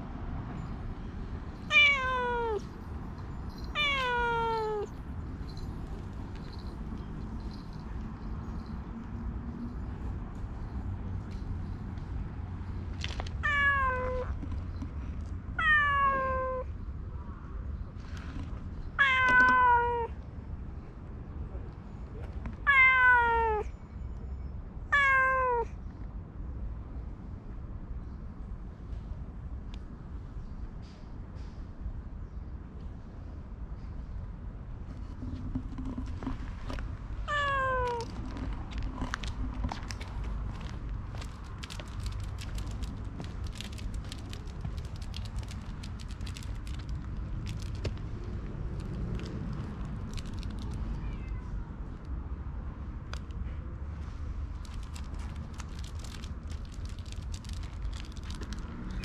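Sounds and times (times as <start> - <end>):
cat meowing: 1.7 - 2.8, 3.6 - 4.9, 13.4 - 14.3, 15.6 - 16.7, 19.0 - 20.2, 22.7 - 23.7, 24.9 - 25.7, 37.3 - 38.2, 50.7 - 51.7.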